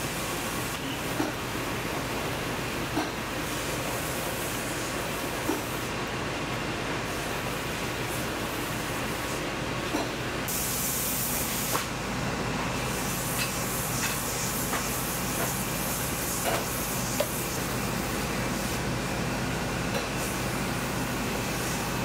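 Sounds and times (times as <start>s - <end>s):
air jet hiss: 10.5s - 11.9s, 12.9s - 17.8s.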